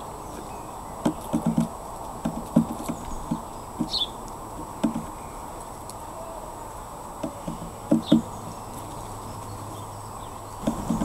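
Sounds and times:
woodpecker pecking on wood: 1.0 - 5.2, 7.1 - 9.7, 10.6 - 11.0.

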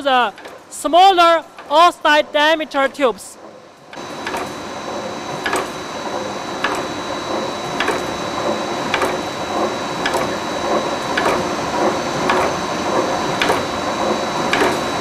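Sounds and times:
rolling mill gears clattering: 0.0 - 15.0
sharp mechanical click: 5.4 - 5.8, 12.3 - 12.6.

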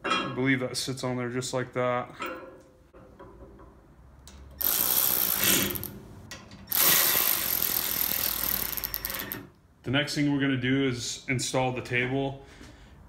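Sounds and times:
cordless electric ratchet running: 4.6 - 5.9, 6.7 - 9.4.

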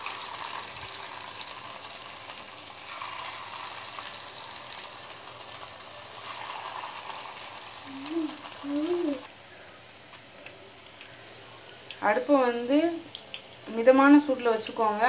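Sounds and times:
batter deep-frying in hot oil: 0.0 - 15.0
small oil crackles: 0.0 - 15.0.

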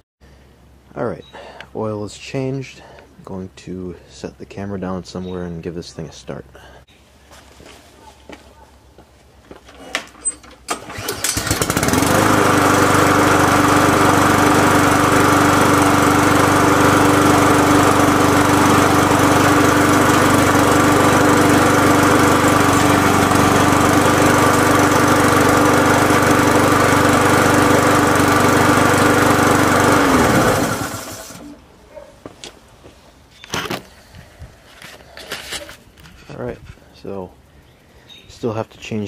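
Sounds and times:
lawn mower engine running: 10.1 - 31.7.

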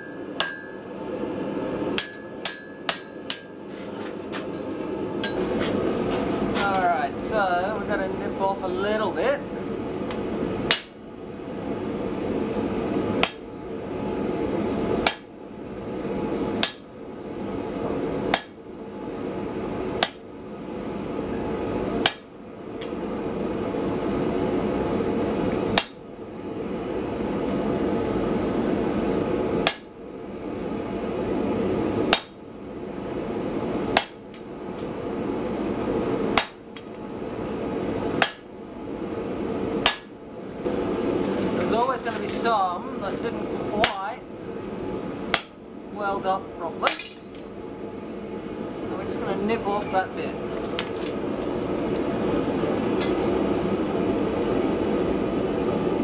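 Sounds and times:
hammer ringing blows on anvil: 0.0 - 1.0, 2.0 - 3.6.

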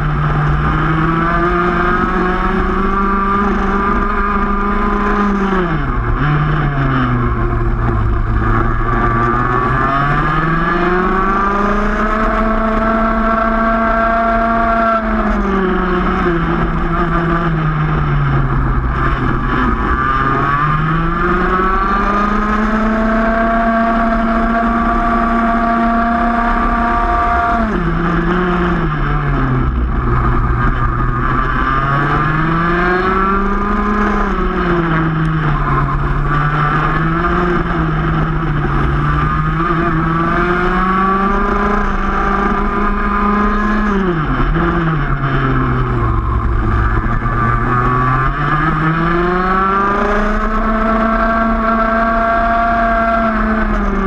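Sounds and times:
two-stroke kart engine: 0.0 - 54.0.

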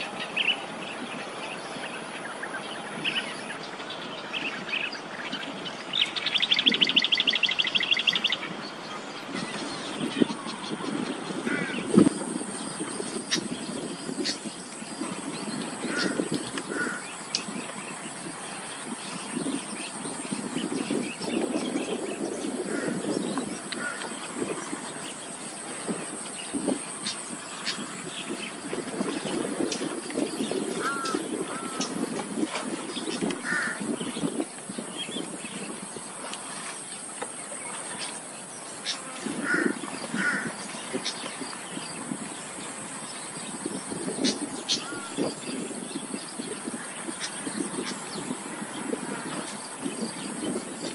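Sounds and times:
birds calling harshly: 0.0 - 50.9
crows cawing: 11.4 - 11.9, 15.8 - 17.1, 22.6 - 23.1, 23.8 - 24.2, 30.8 - 32.0, 33.4 - 33.9, 39.4 - 40.6, 44.7 - 45.2.

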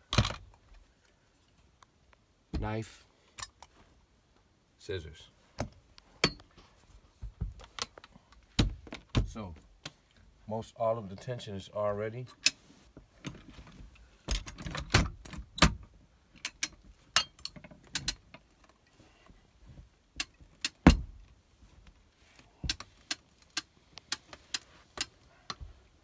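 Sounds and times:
metal clicks and clacks: 16.4 - 18.2.

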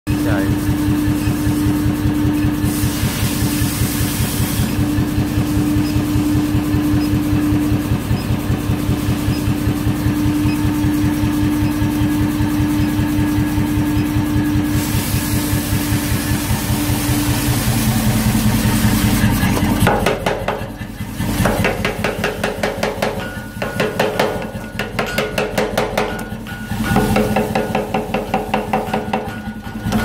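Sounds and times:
power hammer idling: 15.5 - 30.0.

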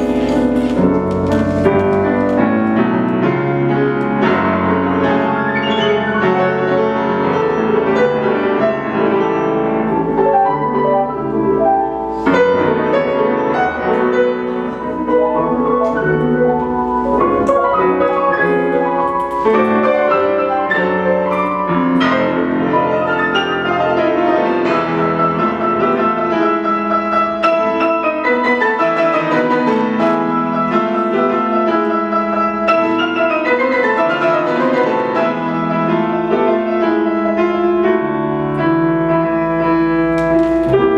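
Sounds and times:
piano played four hands: 0.0 - 40.9.

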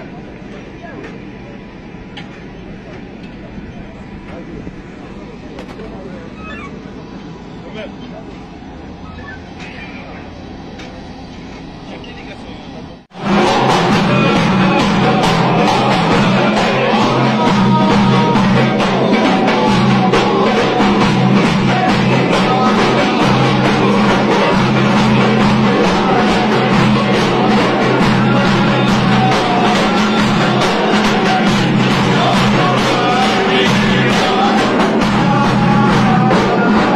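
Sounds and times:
loud music with dense drum beat: 13.1 - 36.9.

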